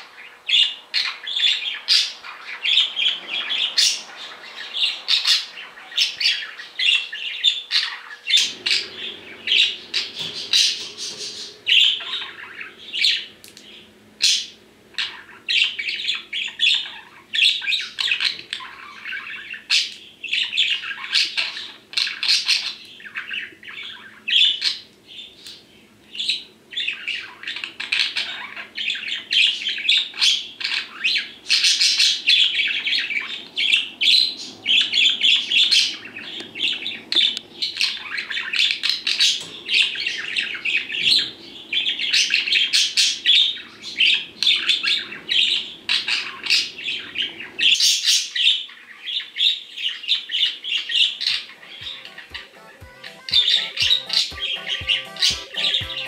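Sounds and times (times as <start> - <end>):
budgerigar chirping: 50.4 - 56.0.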